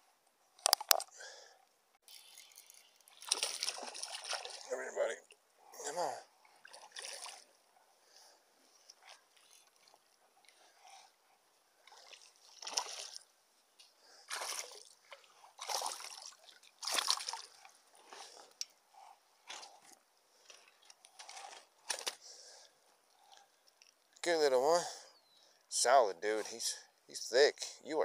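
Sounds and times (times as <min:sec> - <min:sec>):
fish splashing at water surface: 0:02.1 - 0:04.7, 0:14.3 - 0:15.0, 0:15.6 - 0:17.6.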